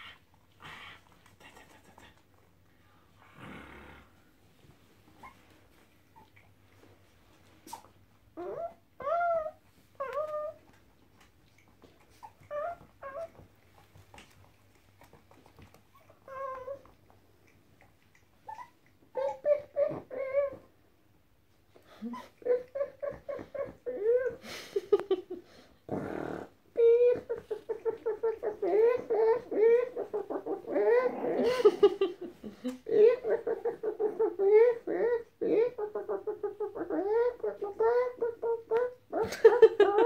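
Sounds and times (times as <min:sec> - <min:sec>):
puppies yipping and whining: 0:07.6 - 0:10.8, 0:11.9 - 0:13.9, 0:15.9 - 0:17.0, 0:18.4 - 0:20.7, 0:22.1 - 0:24.4, 0:26.8 - 0:31.6, 0:32.9 - 0:40.0.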